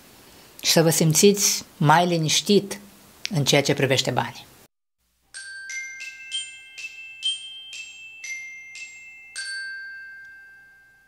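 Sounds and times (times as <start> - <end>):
glockenspiel-like jingle: 5.3 - 11.0.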